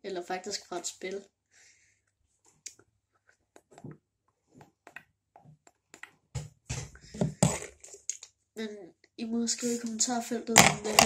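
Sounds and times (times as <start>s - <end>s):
hair clicks and rustles: 2.3s - 8.3s.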